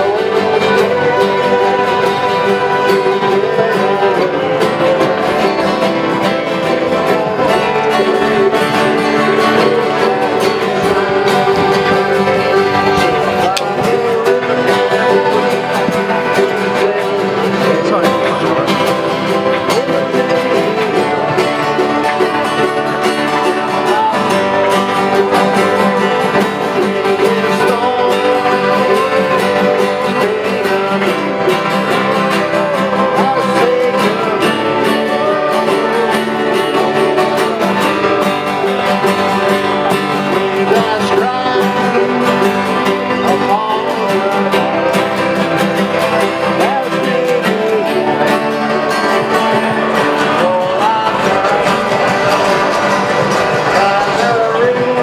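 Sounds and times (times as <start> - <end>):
men singing together: 0.0 - 55.0
strummed acoustic guitars: 0.0 - 55.0.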